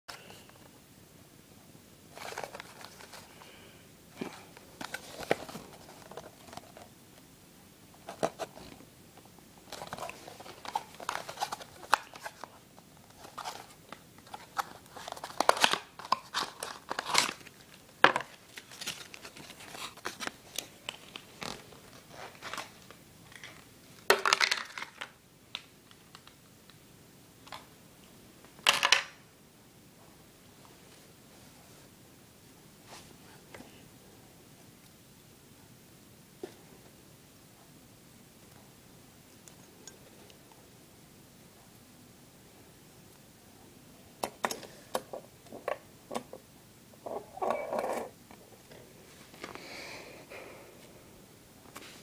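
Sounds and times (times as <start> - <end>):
cardboard and plastic packaging rustling: 2.1 - 3.4, 4.2 - 6.9, 8.0 - 8.8, 9.6 - 25.1.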